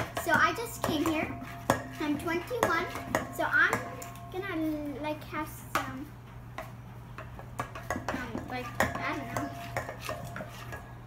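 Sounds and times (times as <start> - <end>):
spatula scraping metal bowl: 0.1 - 4.2, 7.7 - 11.0.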